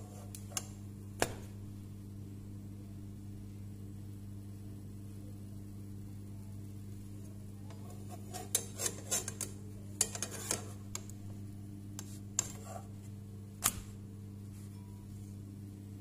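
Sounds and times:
steady low hum: 0.0 - 16.0
frying pan and utensil clattering: 8.4 - 10.7.

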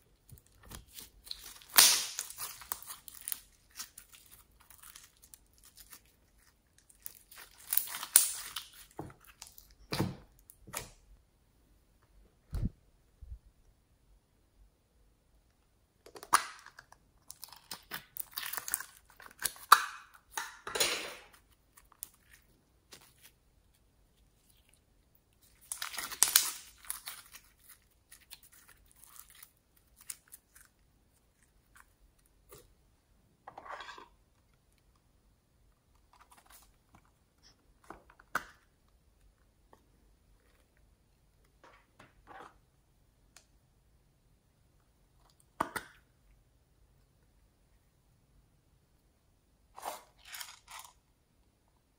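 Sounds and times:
slime crackling when squeezed: 0.7 - 9.4, 25.5 - 30.5.

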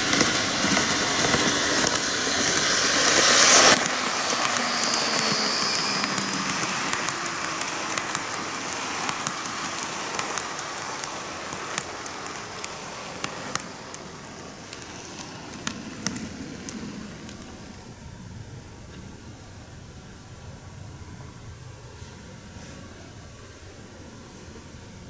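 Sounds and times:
model train motor hiss: 0.0 - 17.8
wheels clicking over rail joints: 0.0 - 18.0.

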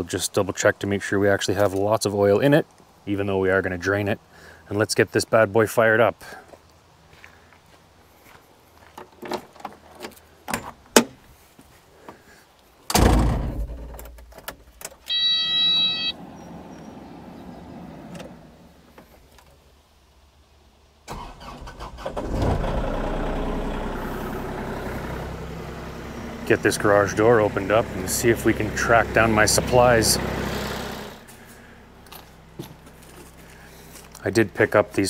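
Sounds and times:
heavy thump: 12.9 - 14.0
electronic warning beep: 15.1 - 16.2
diesel engine starting and idling: 21.1 - 34.1.

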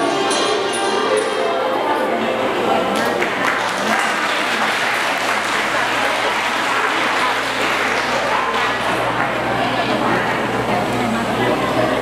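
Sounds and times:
classical ensemble playing: 0.0 - 2.8
audience applauding: 3.0 - 10.1.

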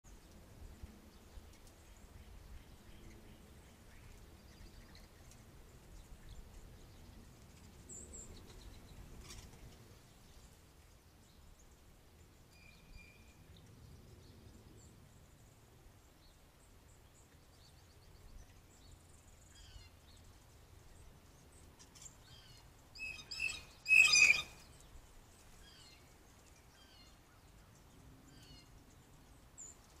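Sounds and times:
small birds chirping: 0.1 - 30.0
blue jays calling: 23.0 - 24.6.

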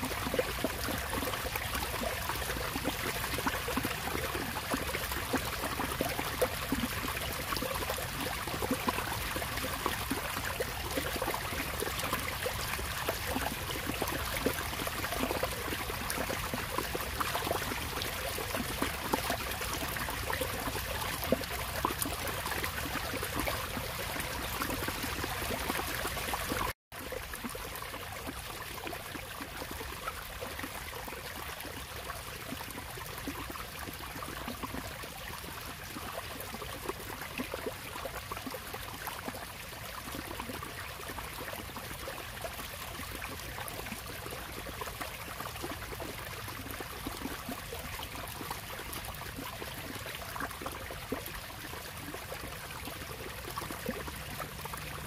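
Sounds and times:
water splashing into pond: 0.0 - 55.0.

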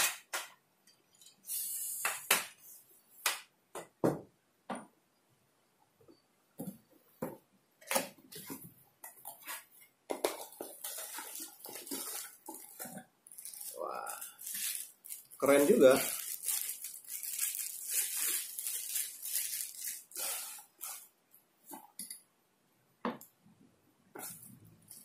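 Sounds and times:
cardboard and packaging rustling: 7.8 - 21.0.

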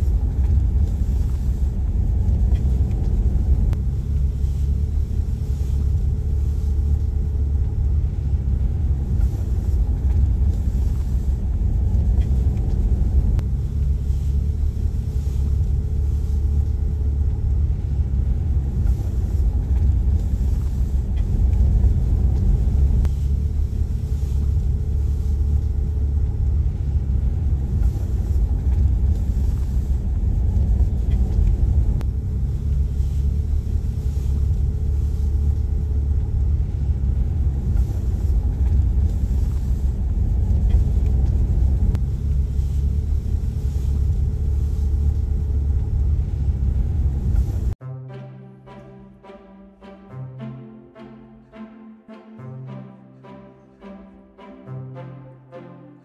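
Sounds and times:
car interior engine and tyre rumble: 0.0 - 47.8.

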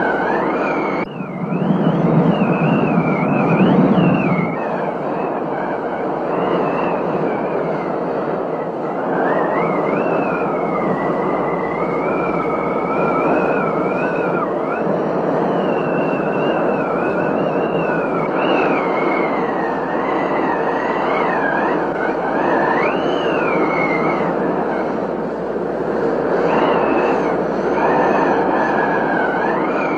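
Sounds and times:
thin high wavering whistle: 0.0 - 25.0, 26.3 - 29.9.

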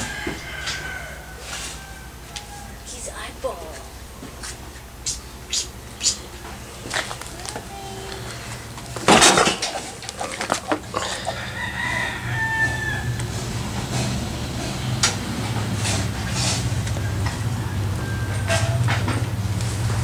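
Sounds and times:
rooster crowing: 0.0 - 3.0, 10.9 - 19.2
steady low hum: 0.0 - 20.0.

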